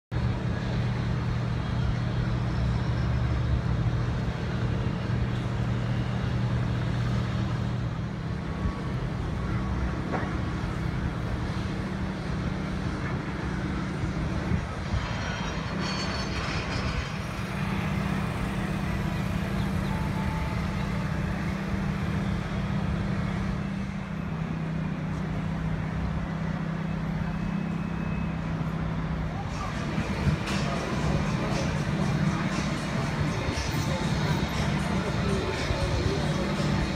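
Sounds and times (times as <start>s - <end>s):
engines humming: 0.1s - 36.9s
traffic noise: 0.1s - 36.9s.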